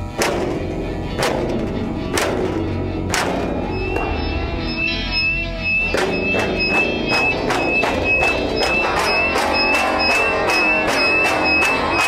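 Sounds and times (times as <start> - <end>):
instrumental music with steady beat: 0.0 - 12.0
high wavering held tone: 3.4 - 12.0.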